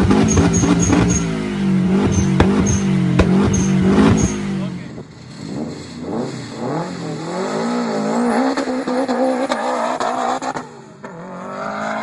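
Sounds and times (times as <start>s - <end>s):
sharp exhaust pops: 0.0s - 1.3s, 1.9s - 4.4s
car engine revving: 0.0s - 12.0s.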